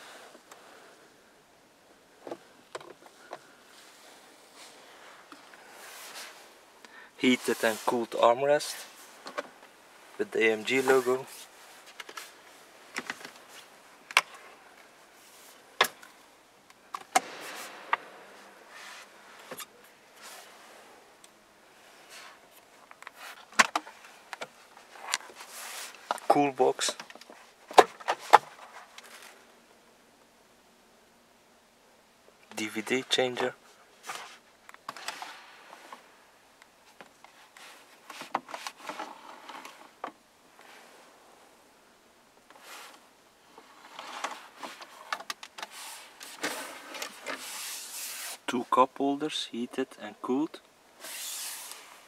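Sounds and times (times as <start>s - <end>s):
sliding rub: 45.7s - 48.4s, 51.0s - 52.0s.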